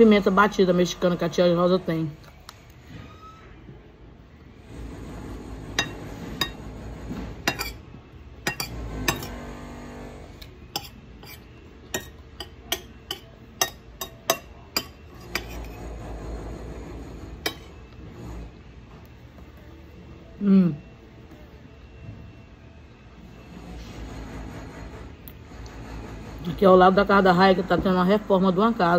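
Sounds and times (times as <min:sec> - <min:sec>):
cutlery clinking against a plate: 0:05.8 - 0:06.7, 0:07.4 - 0:09.4, 0:10.7 - 0:15.8, 0:17.4 - 0:17.8.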